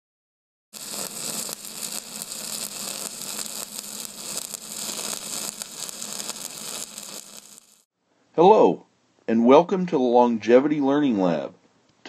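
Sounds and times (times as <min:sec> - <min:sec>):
crackling hiss: 0:00.8 - 0:07.9.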